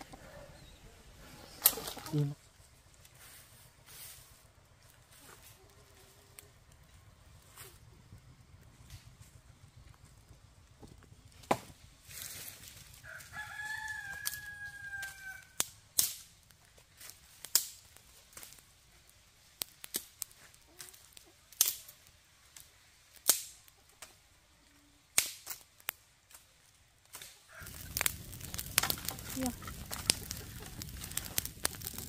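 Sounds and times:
rooster crowing: 13.0s - 15.6s, 27.5s - 28.5s.

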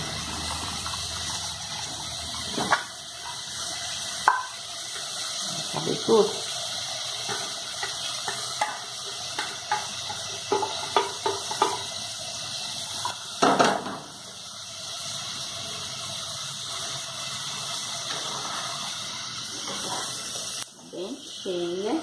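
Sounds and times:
pot clunking on stove: 4.2s - 5.0s, 7.2s - 11.9s, 13.0s - 14.1s
spoon stirring pot: 7.2s - 11.9s.

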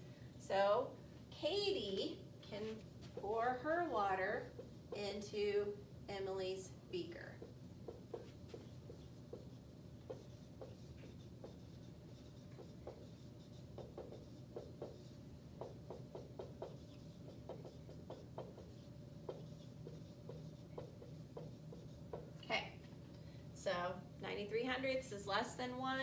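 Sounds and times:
marker writing on whiteboard: 1.4s - 5.5s, 7.0s - 22.5s.

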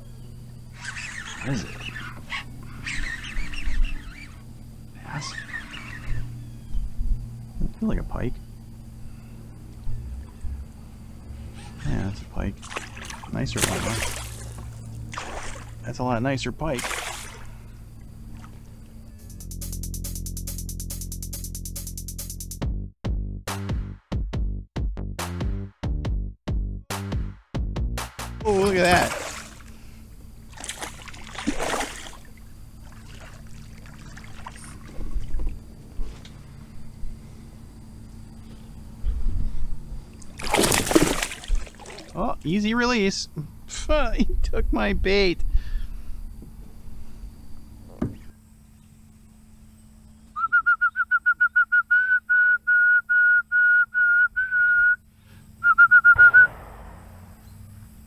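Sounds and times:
fish splashing at the surface: 12.6s - 15.8s, 16.8s - 17.6s, 28.7s - 29.8s, 30.5s - 35.4s, 40.3s - 42.2s
person whistling: 50.4s - 55.0s, 55.6s - 56.5s
sharp knock: 56.2s - 57.7s.

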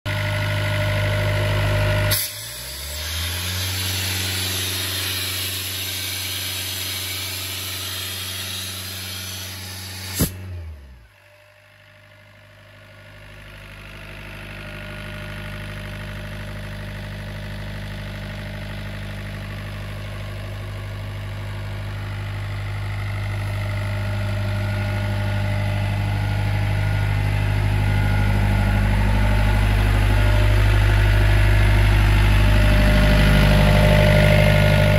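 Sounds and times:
diesel engine idling: 0.1s - 2.2s, 11.8s - 34.9s.

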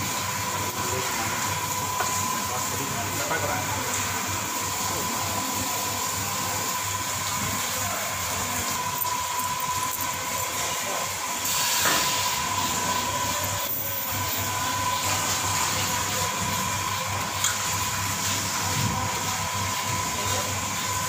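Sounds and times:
train hissing: 11.2s - 16.9s.

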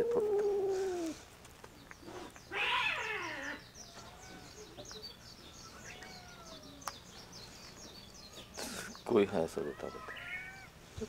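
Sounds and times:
small birds chirping: 0.0s - 11.0s
cat meowing raspy: 2.5s - 3.6s, 9.6s - 10.7s.

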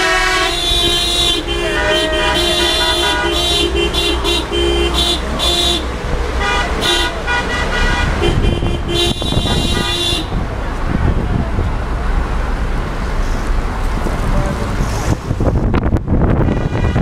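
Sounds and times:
vehicle horns honking: 0.0s - 10.4s, 16.4s - 17.0s
car rumble with window open: 8.0s - 17.0s.

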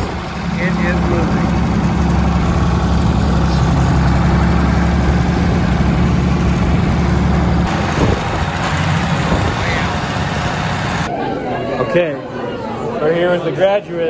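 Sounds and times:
tractor engine running: 0.0s - 11.1s.

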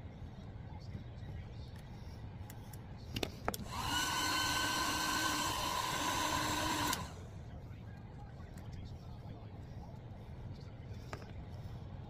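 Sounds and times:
heat gun fan whine and hiss: 2.2s - 7.4s.

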